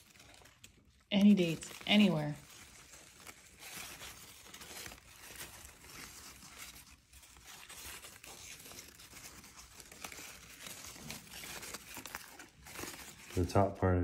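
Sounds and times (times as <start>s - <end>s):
newspaper crinkling: 0.0s - 14.0s
paper tearing: 0.0s - 14.0s.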